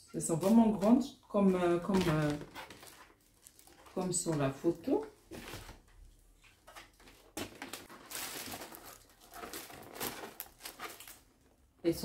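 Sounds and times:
cardboard rustling and scraping: 0:05.3 - 0:11.3.

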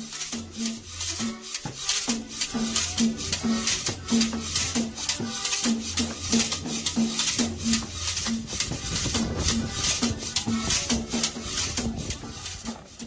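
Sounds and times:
shaker percussion: 0:00.0 - 0:13.0
low bass line: 0:06.0 - 0:13.0.

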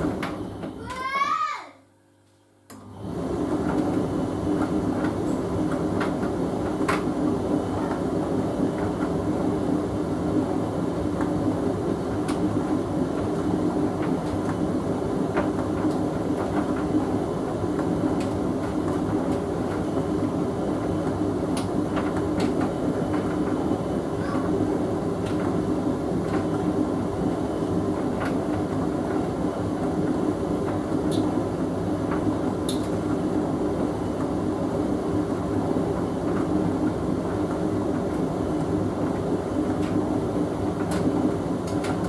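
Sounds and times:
tumble dryer running: 0:00.0 - 0:01.6, 0:02.7 - 0:42.0
light clicks of tumbling load: 0:40.7 - 0:42.0.

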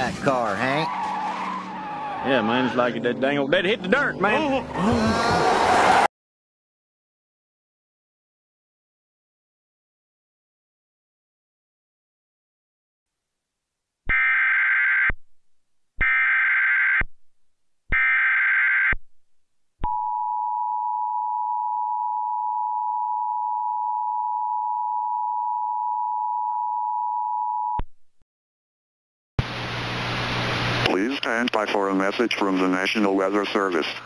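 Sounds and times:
two-tone alarm: 0:14.1 - 0:15.2, 0:16.0 - 0:17.1, 0:17.9 - 0:19.0.

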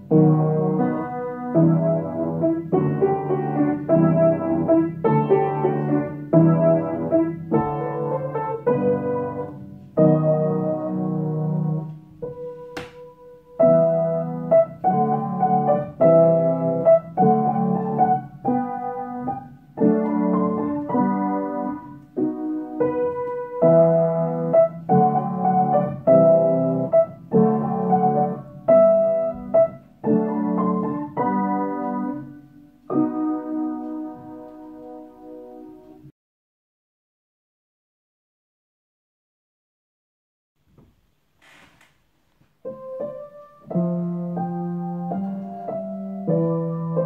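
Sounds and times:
piano chords: 0:00.0 - 0:36.1, 0:42.4 - 0:47.0.

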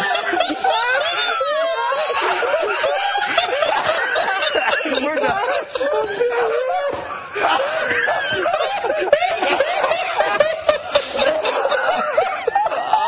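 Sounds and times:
men laughing hard: 0:00.0 - 0:13.0.

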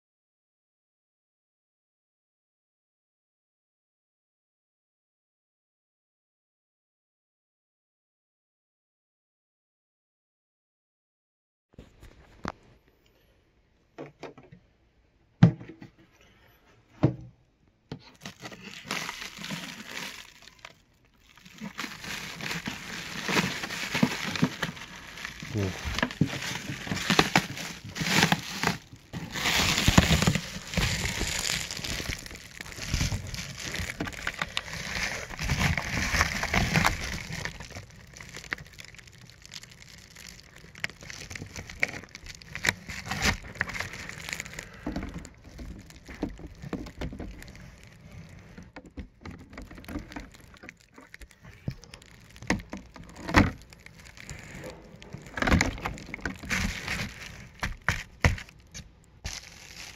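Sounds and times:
foil liner crinkling: 0:18.2 - 0:59.9.

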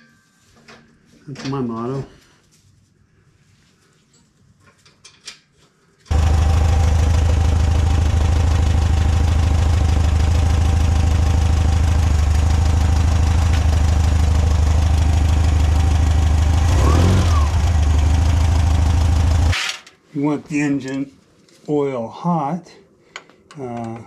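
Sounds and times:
car engine idling: 0:06.1 - 0:19.5.

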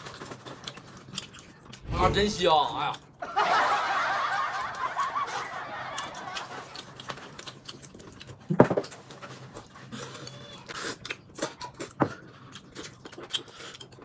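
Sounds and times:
chewing: 0:00.0 - 0:01.9, 0:05.4 - 0:14.0.

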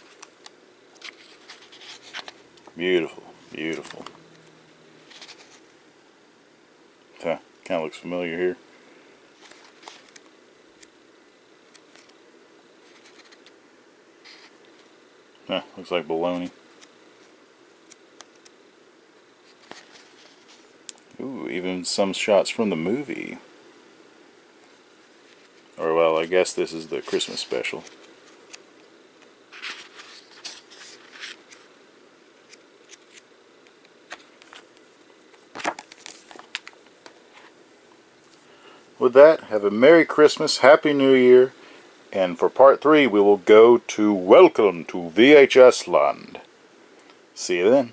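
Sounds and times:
low room hiss: 0:00.0 - 0:47.9
book pages turning: 0:00.9 - 0:02.7, 0:03.5 - 0:05.7, 0:09.4 - 0:10.9, 0:11.7 - 0:12.2, 0:12.8 - 0:13.6, 0:17.8 - 0:18.5, 0:19.4 - 0:20.7, 0:26.9 - 0:28.6, 0:29.5 - 0:31.7, 0:32.5 - 0:33.3, 0:34.1 - 0:37.5.

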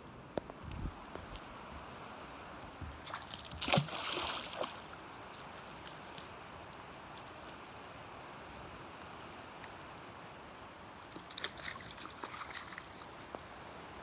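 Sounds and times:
river flowing: 0:01.0 - 0:14.0
water splash: 0:03.0 - 0:05.0, 0:11.1 - 0:13.0.

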